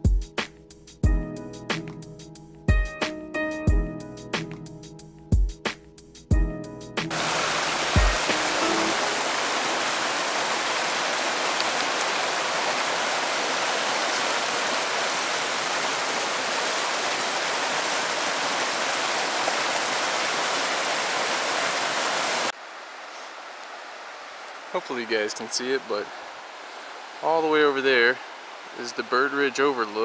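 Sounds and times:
creek rushing over rocks: 7.1s - 30.0s
quiet outdoor background: 22.5s - 30.0s.

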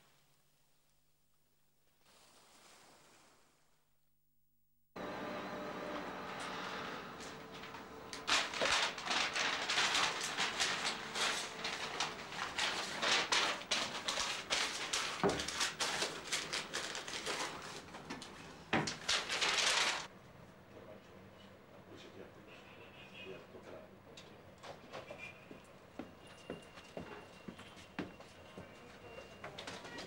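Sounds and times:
faint machine hum: 5.0s - 30.0s
paper rustling and shuffling: 7.2s - 20.1s, 29.1s - 30.0s.

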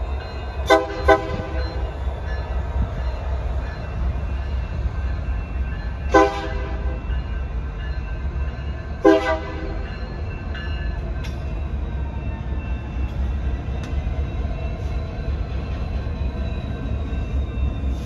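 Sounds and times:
locomotive horn blasts: 0.7s - 1.6s, 6.1s - 7.0s, 9.0s - 9.8s.

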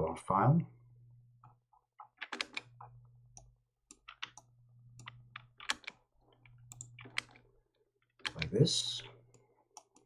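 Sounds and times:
low steady hum: 0.0s - 10.0s
mouse and keyboard clicking: 8.2s - 8.6s.

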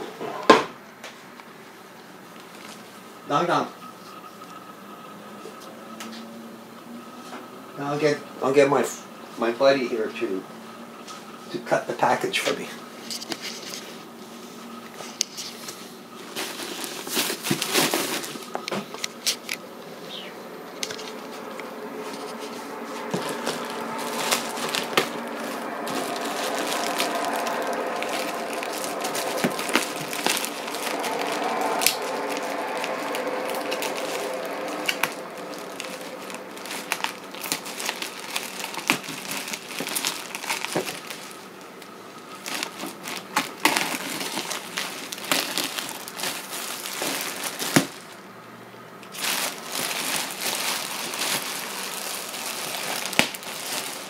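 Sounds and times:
plastic wrap crinkling: 15.0s - 19.6s, 20.9s - 48.2s, 49.0s - 54.0s.

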